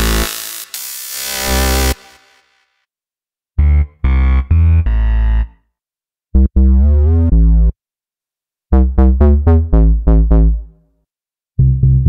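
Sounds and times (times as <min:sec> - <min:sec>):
synth bass phrases: 0:03.6 - 0:05.6, 0:06.4 - 0:07.8, 0:08.8 - 0:10.7, 0:11.6 - 0:12.0.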